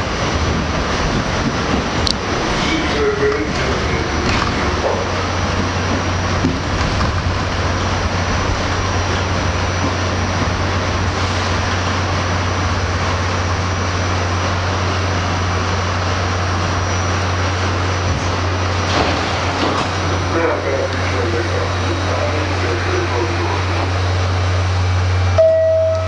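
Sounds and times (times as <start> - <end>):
strong low hum: 0.0 - 26.0
subway train rumbling: 0.0 - 26.0.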